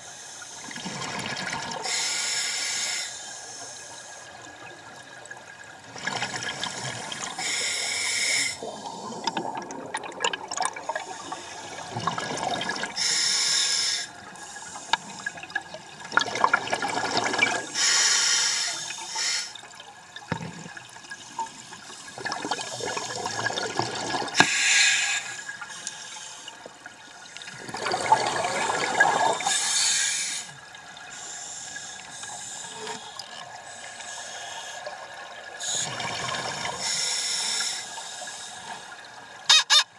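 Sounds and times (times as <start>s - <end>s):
regulator hiss on inhalation: 1.9s - 4.2s, 7.4s - 8.7s, 13.0s - 15.3s, 17.8s - 19.6s, 24.4s - 26.5s, 29.4s - 33.1s, 36.8s - 38.9s
exhaled air bubbling: 4.3s - 13.2s, 14.0s - 17.8s, 19.6s - 24.5s, 26.5s - 29.7s.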